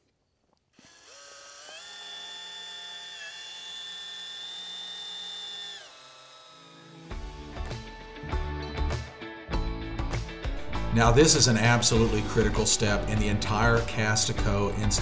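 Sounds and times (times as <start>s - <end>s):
cordless drill motor whine: 0.8s - 7.5s
guitar music: 7.1s - 15.0s.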